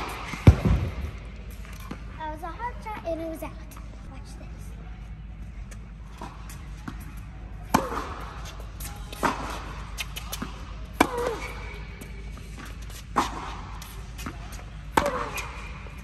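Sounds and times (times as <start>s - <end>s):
tennis ball struck by racket: 0.0s - 1.1s, 6.2s - 16.0s
tennis ball bouncing: 6.1s - 16.0s.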